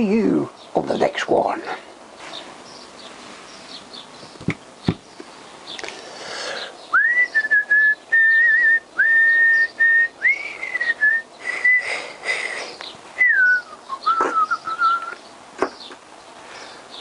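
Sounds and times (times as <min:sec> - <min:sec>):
man whistling a slow tune: 0:06.9 - 0:11.9, 0:13.2 - 0:15.2.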